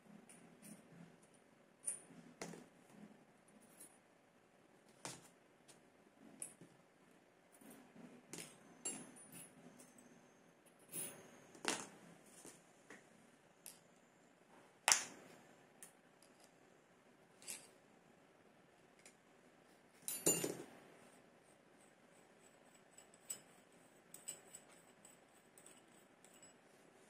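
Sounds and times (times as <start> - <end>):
metal parts clicking and clinking: 17.4 - 17.8, 20.0 - 20.7.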